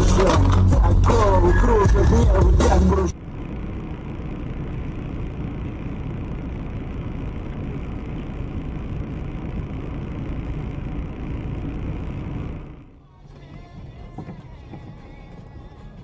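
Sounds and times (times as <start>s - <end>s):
car interior driving noise: 0.0s - 16.0s.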